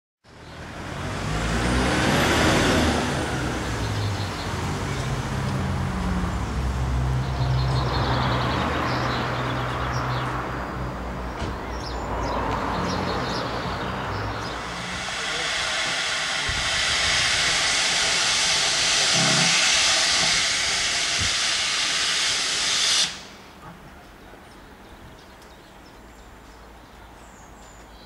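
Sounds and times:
engine running: 0:00.3 - 0:08.5, 0:10.8 - 0:23.9
high rising and falling whistle: 0:14.3 - 0:23.3.

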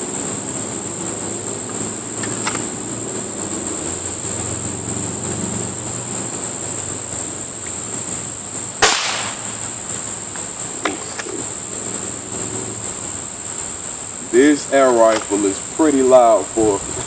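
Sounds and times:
high-pitched insect drone: 0:00.0 - 0:17.0
air rifle shot crack: 0:08.8 - 0:09.6.

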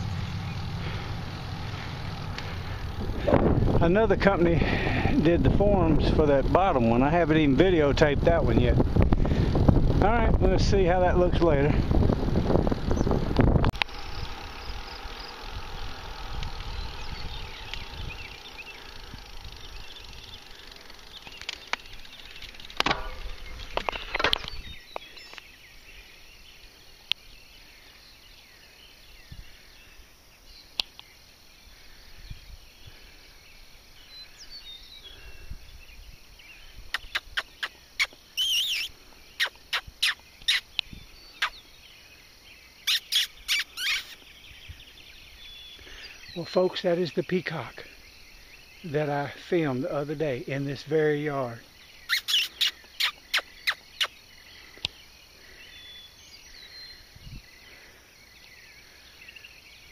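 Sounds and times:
wind buffeting microphone: 0:00.0 - 0:25.0, 0:35.1 - 0:37.4, 0:57.0 - 0:57.7
bicycle road noise: 0:00.0 - 0:59.9.

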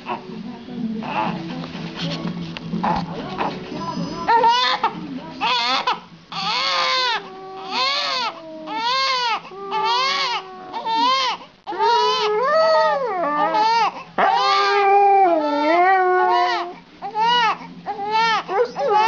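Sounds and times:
baby crying: 0:04.1 - 0:12.4, 0:13.4 - 0:19.0
dog howling: 0:04.2 - 0:19.0.

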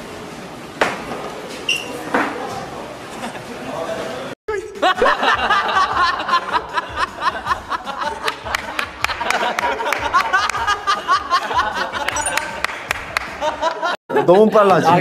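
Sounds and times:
background music: 0:04.5 - 0:13.9
young men laughing: 0:04.6 - 0:15.0.

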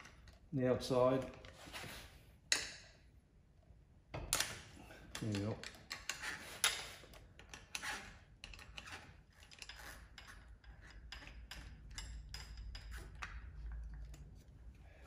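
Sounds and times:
wrenches clinking on metal: 0:04.3 - 0:13.7.

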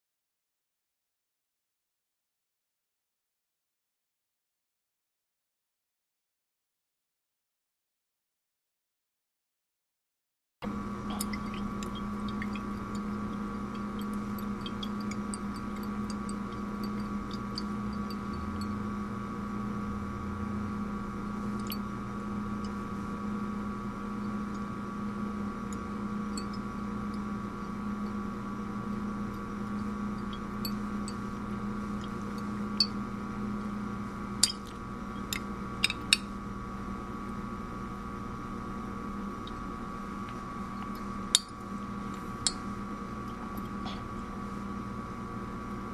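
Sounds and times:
steady low hum: 0:10.6 - 0:45.9.

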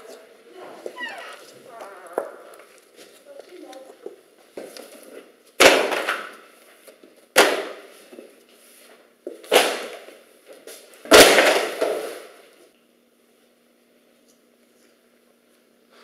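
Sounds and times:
books crashing to the floor: 0:04.5 - 0:12.5.

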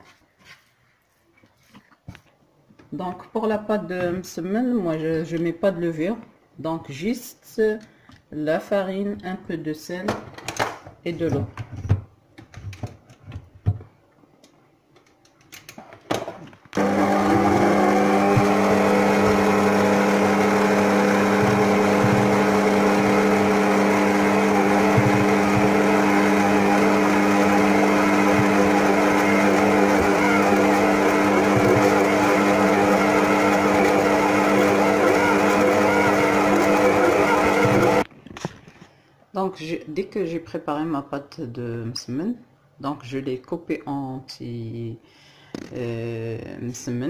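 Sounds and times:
stand mixer motor humming: 0:16.8 - 0:38.0.

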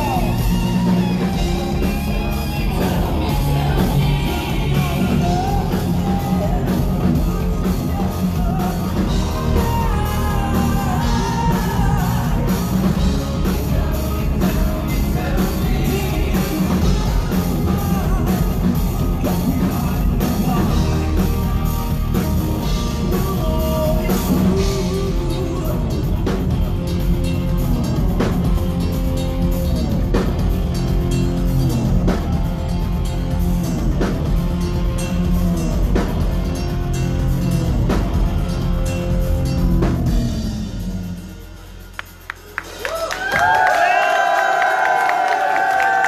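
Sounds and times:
person singing: 0:00.0 - 0:28.6
metal band playing live: 0:00.0 - 0:46.0.

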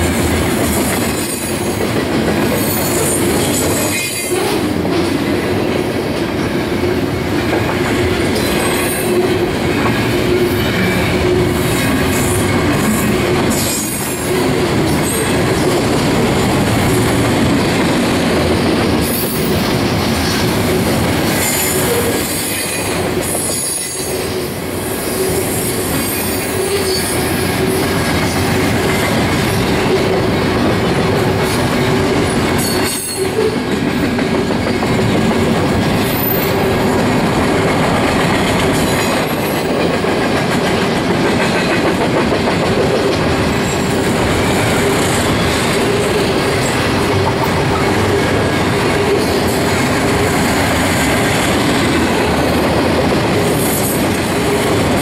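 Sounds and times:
steel wheels rumbling on rail: 0:00.0 - 0:55.0.

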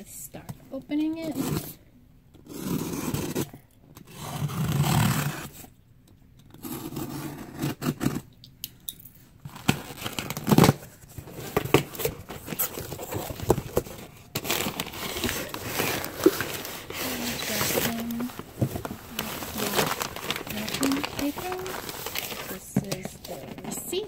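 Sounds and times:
cardboard flaps rustling: 0:09.6 - 0:24.0.

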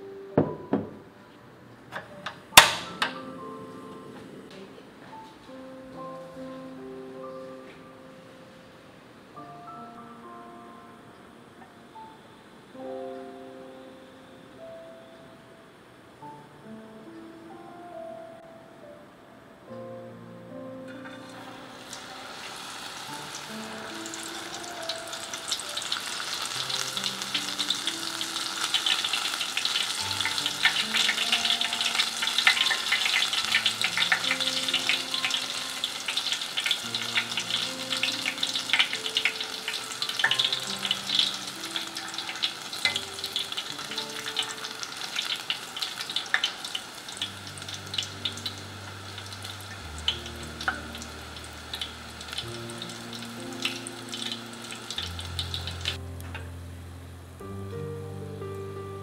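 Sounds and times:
food deep-frying in hot oil: 0:21.0 - 0:56.0.

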